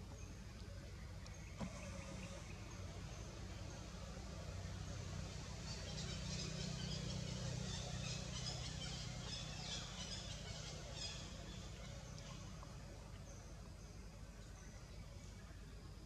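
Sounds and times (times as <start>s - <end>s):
small birds chirping: 0.0s - 16.0s
steady low hum: 0.0s - 16.0s.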